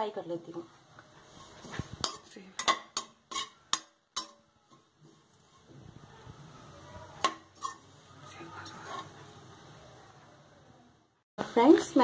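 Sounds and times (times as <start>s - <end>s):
metal spatula scraping a pan: 1.2s - 9.4s.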